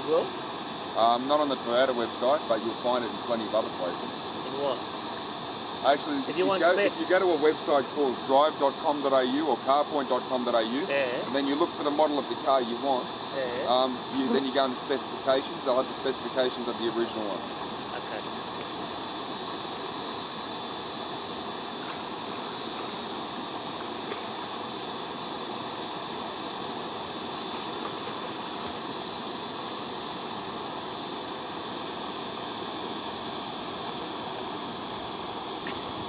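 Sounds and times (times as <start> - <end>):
high insect chirps: 0.0 - 36.0.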